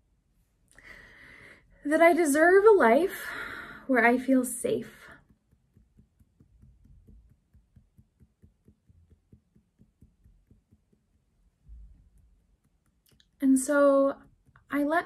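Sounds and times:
fingertips tapping on face: 5.0s - 14.8s.

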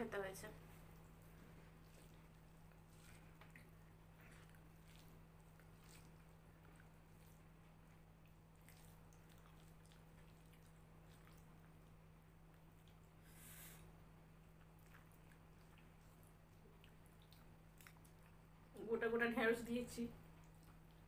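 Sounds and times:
steady low hum: 0.0s - 21.0s
soft chewing: 0.4s - 18.8s, 20.1s - 21.0s
fingers squishing food: 0.8s - 13.2s.

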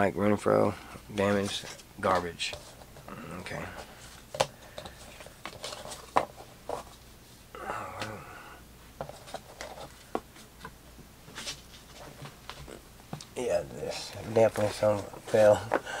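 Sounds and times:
murmured voice: 3.1s - 3.8s, 7.6s - 8.6s
cards tapping and flicking: 4.3s - 6.9s.

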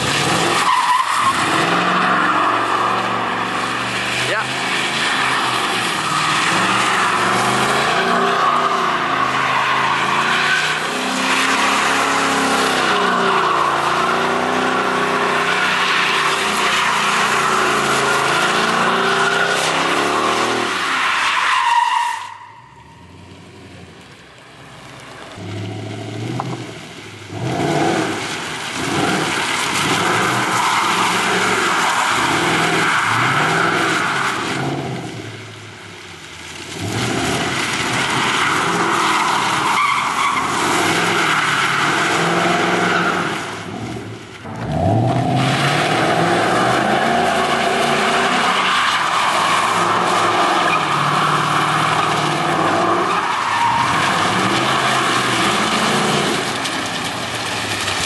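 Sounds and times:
car engine revving: 0.0s - 58.0s
tyres squealing: 38.1s - 43.4s, 45.2s - 56.6s.

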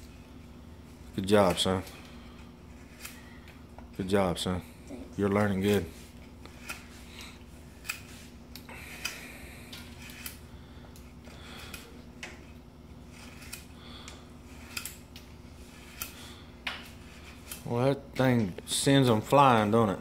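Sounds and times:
steady low hum: 0.0s - 20.0s
knife carving wood: 9.8s - 10.4s, 13.0s - 17.7s.

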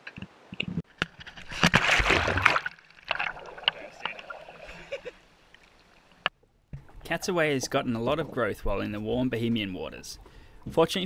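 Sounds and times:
loud splash into water: 1.6s - 3.6s.

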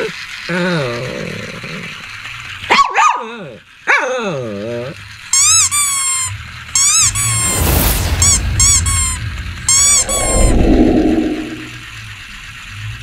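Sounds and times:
dog squealing yelps: 2.7s - 4.2s, 5.4s - 7.6s.

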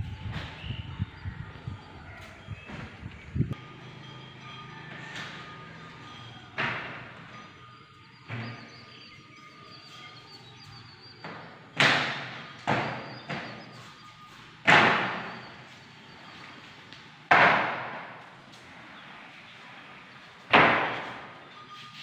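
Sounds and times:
sliding door thudding against frame: 20.5s - 21.4s.

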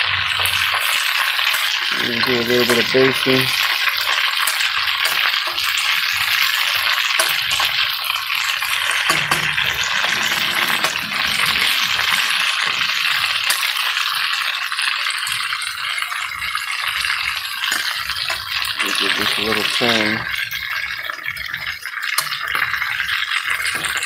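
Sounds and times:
fish sizzling in hot oil: 0.0s - 24.0s
metal spatula clicking in pot: 4.4s - 5.6s.

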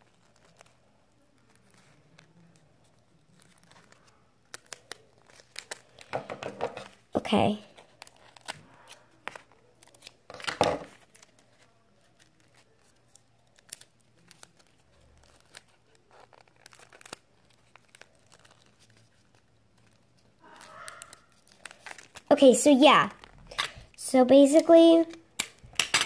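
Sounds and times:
paper crinkling: 0.0s - 23.8s
tape tearing: 13.5s - 22.3s.

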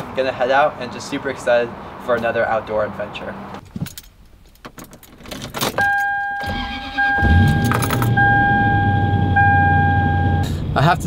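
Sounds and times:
keys rattling and clicking: 3.6s - 6.2s, 7.5s - 8.2s
electronic warning tone: 5.9s - 10.5s
car engine cranking and idling: 6.4s - 11.0s.

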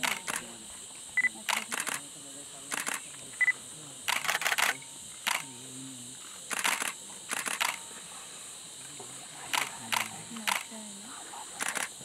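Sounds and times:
camera shutter clicks: 0.0s - 0.5s, 1.4s - 2.0s, 2.7s - 3.0s, 4.1s - 5.5s, 6.5s - 7.8s, 9.5s - 10.7s, 11.6s - 11.9s
steady high hum: 0.0s - 12.0s.

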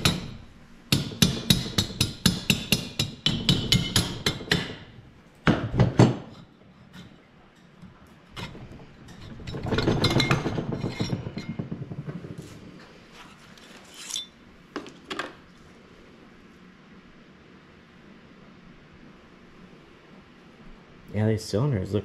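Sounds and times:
metal clinking and rattling: 8.4s - 12.4s.

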